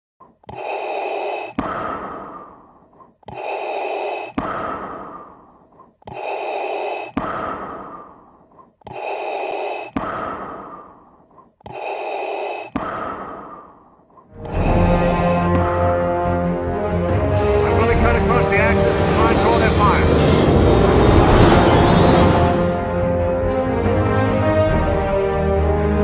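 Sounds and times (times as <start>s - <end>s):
heavy respirator breathing: 0.4s - 20.4s
music with deep held notes: 14.4s - 26.0s.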